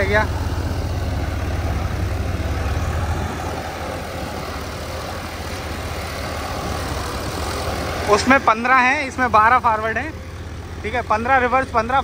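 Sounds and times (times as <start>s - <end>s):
tractor engines rumbling: 0.0s - 12.0s.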